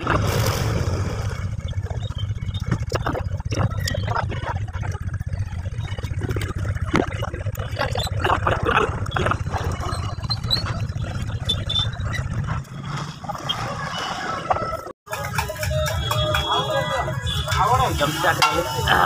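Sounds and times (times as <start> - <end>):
low steady rumble: 0.0 - 13.4.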